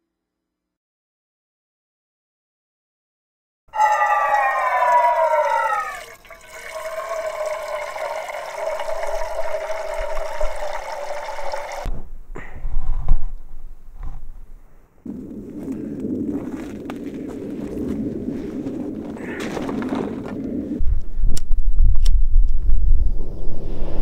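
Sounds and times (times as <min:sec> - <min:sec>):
water running into metal mug: 0:05.3 - 0:11.9
low rushing noise: 0:20.5 - 0:24.0.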